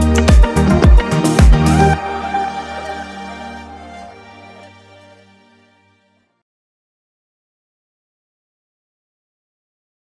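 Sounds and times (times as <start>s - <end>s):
electronic dance music: 0.0s - 4.9s.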